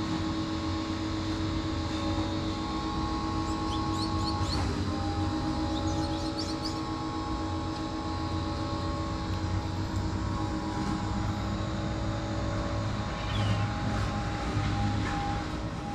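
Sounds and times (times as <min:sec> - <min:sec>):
steady mechanical drone: 0:00.0 - 0:15.9.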